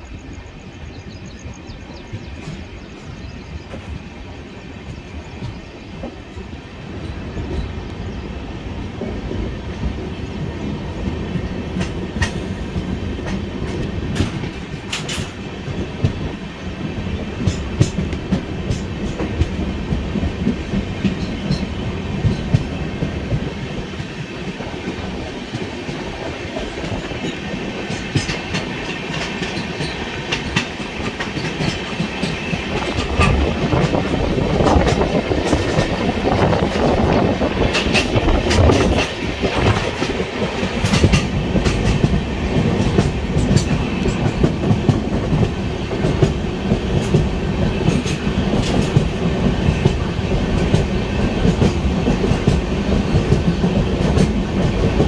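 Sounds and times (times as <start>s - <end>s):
train rumble: 0.0s - 55.0s
wheels clacking over rail joints: 11.1s - 55.0s.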